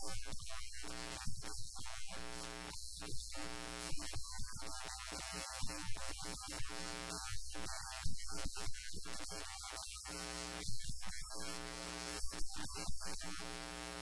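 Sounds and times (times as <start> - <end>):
constant high hiss: 0.0 - 14.0.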